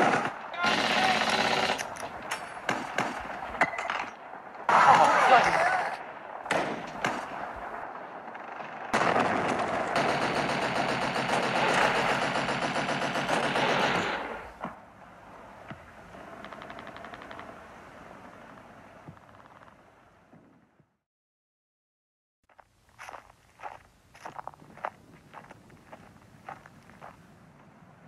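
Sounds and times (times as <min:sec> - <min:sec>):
machine-gun burst: 0:00.0 - 0:02.0, 0:08.4 - 0:14.5
gunshots: 0:00.0 - 0:14.8.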